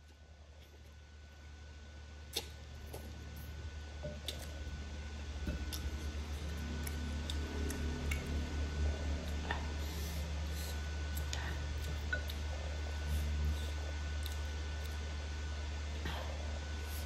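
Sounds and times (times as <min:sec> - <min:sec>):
steady low hum: 0:00.0 - 0:17.0
chewing and slurping: 0:05.5 - 0:15.1.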